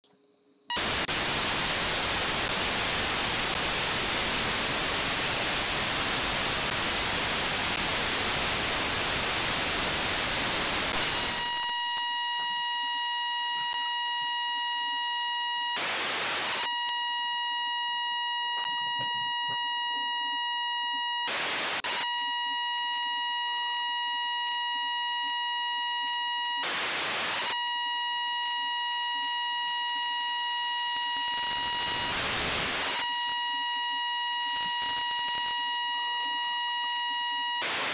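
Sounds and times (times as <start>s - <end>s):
radio squelch hiss: 0.7s - 37.9s
static bursts: 0.7s - 37.9s
steady high-pitched tone: 16.6s - 21.3s, 27.6s - 37.7s.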